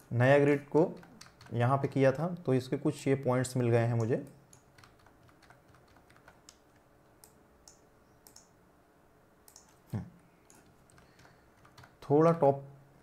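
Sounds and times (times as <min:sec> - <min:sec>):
mouse and keyboard clicks: 0:09.5 - 0:09.8.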